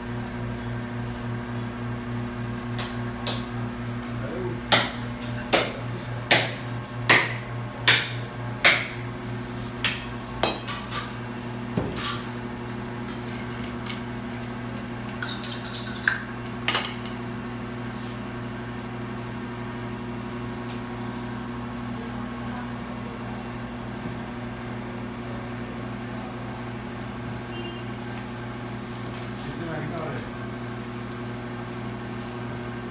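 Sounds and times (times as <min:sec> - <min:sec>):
cleaver chopping meat on wood: 0:04.7 - 0:09.0.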